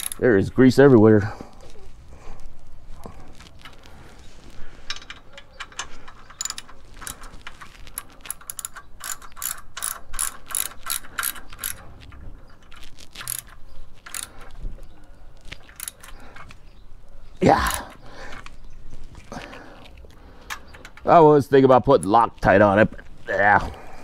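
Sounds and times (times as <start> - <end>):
ratchet wrench clicking: 0.0 - 0.3, 4.9 - 11.8, 12.6 - 14.6, 15.7 - 16.2.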